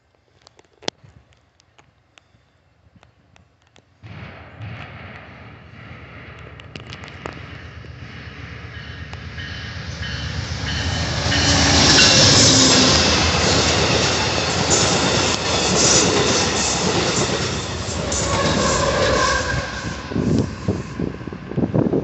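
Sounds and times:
train roaring past: 0:04.6 - 0:22.0
train wheels clattering over rail joints: 0:10.0 - 0:19.2.

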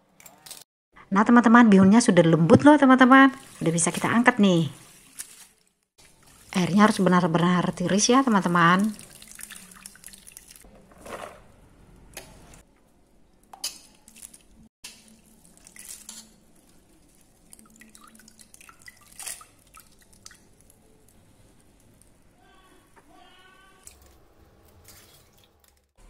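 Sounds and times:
water dripping and trickling: 0:03.3 - 0:10.7, 0:13.4 - 0:22.2.

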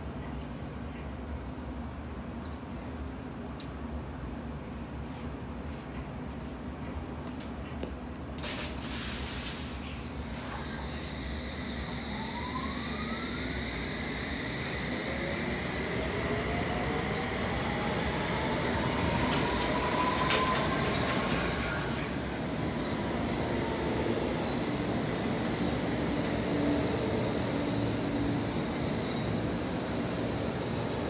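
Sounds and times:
train running in with hum: 0:09.3 - 0:31.0
train traction motor whine: 0:10.2 - 0:31.0.

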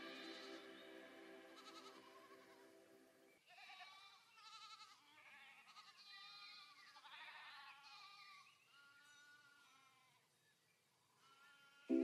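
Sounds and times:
sheep and goats bleating: 0:00.0 - 0:00.7, 0:01.6 - 0:02.7, 0:03.4 - 0:10.3, 0:11.1 - 0:11.9.

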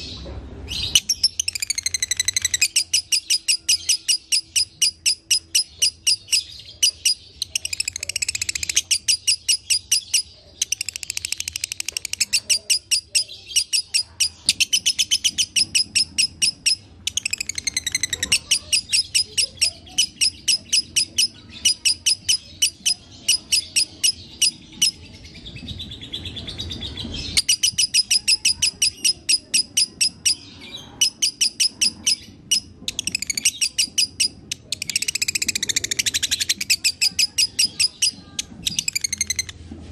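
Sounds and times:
lovebird chirping song: 0:00.0 - 0:39.6.

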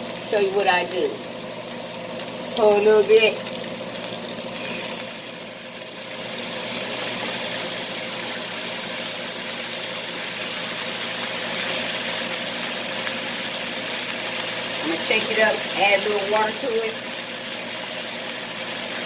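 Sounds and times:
sauce sizzling in a skillet: 0:00.0 - 0:19.0.

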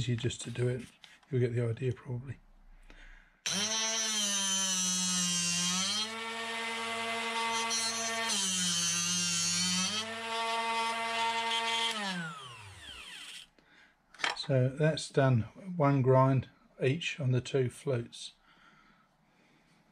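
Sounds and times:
drill bit sharpener motor running: 0:03.5 - 0:13.4.

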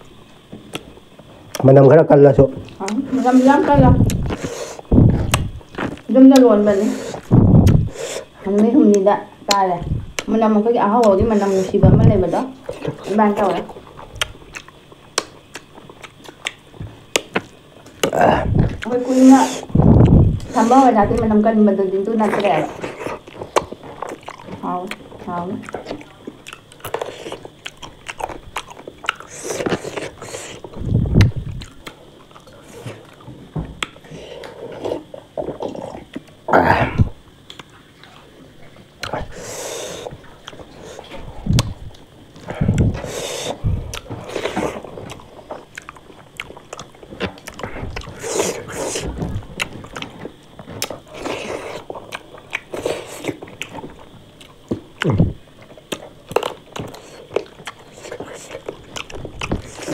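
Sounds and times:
person chewing and biting: 0:04.0 - 0:06.1, 0:07.0 - 0:08.2, 0:12.6 - 0:18.9, 0:22.7 - 0:36.4, 0:39.0 - 0:59.9.

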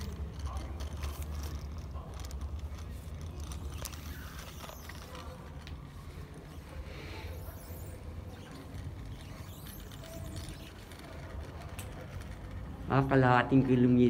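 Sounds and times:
bike mechanism clicks and rattles: 0:00.0 - 0:05.9, 0:07.5 - 0:13.2
bicycle rolling rumble: 0:00.0 - 0:14.0.

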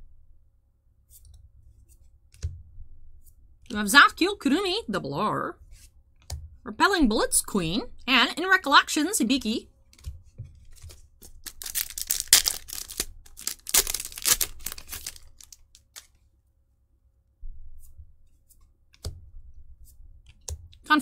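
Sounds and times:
foil wrapper tearing and crinkling: 0:10.7 - 0:16.2.

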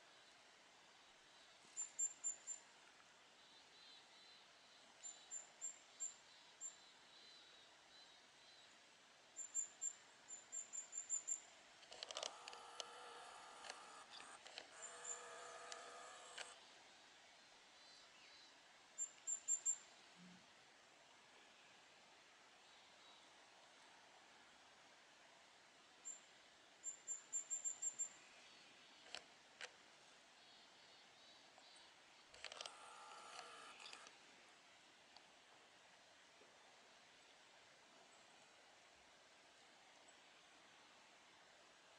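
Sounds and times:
short sharp clicks: 0:11.9 - 0:16.6.

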